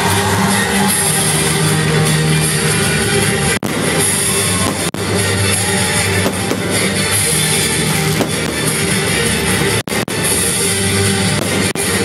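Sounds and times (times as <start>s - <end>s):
rock music with drums: 0.0s - 12.0s.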